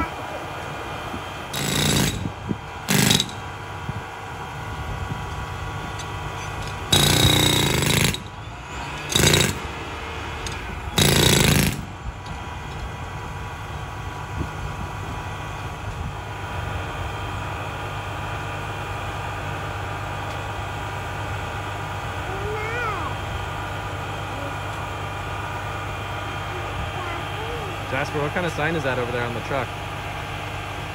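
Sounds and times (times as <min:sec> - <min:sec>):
steady engine hum: 0:00.0 - 0:30.9
jackhammer breaking ground: 0:01.5 - 0:02.3, 0:02.9 - 0:03.4, 0:06.7 - 0:09.8, 0:10.9 - 0:12.0.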